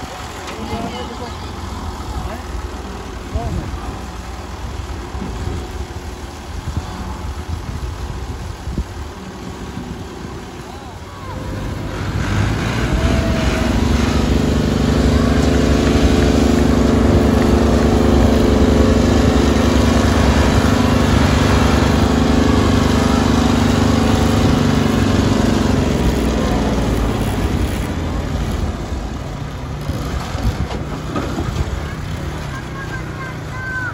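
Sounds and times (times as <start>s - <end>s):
tractor diesel engine: 0.0s - 33.9s
small motorcycle engine running: 12.8s - 33.1s.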